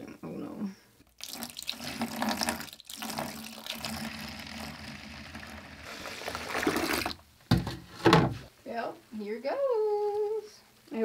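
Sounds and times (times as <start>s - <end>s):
water pouring into bucket: 1.0s - 7.2s.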